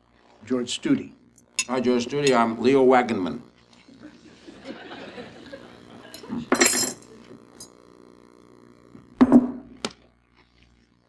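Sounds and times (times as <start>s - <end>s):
glassware and dishes clinking: 6.4s - 7.1s.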